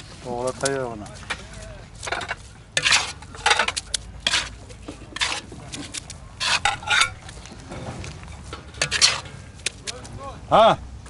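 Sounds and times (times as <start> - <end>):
metal skimmer scraping pot: 2.0 - 9.9.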